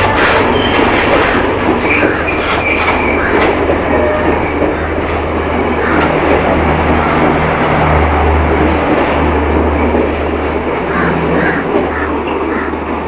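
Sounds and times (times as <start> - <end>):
low engine drone: 0.0 - 13.0
train wheels rumbling on rails: 0.0 - 13.0.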